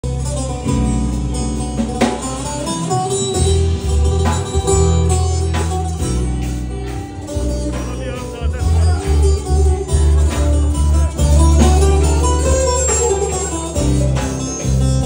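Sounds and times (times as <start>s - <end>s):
deep bass notes: 0.0s - 15.0s
strummed acoustic guitar: 0.0s - 15.0s.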